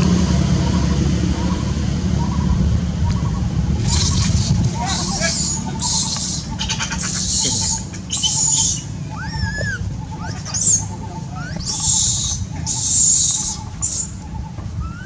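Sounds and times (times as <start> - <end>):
infant monkey screeching: 0.6 - 15.0
high whimpers: 4.8 - 11.9.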